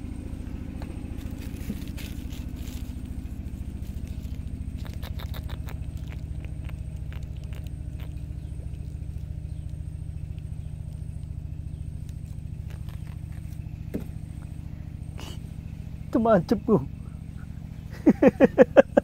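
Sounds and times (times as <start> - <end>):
engine chugging: 0.0 - 19.0
light clicks and rustles on paper: 0.7 - 11.3, 12.0 - 14.1.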